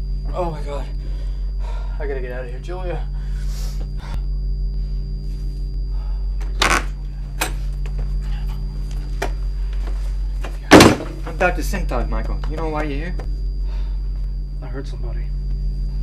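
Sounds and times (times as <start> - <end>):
electrical hum: 0.0 - 16.0
door opening: 6.4 - 7.6.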